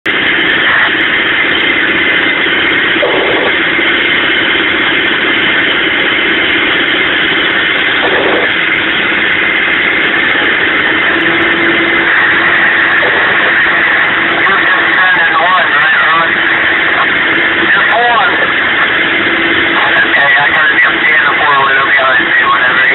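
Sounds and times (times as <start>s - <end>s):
diesel truck engine droning: 0.0s - 22.9s.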